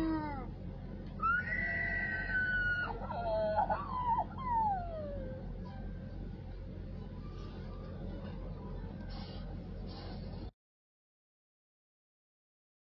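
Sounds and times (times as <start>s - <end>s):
steady low hum: 0.0s - 10.6s
high whinny-like cry: 1.2s - 5.5s.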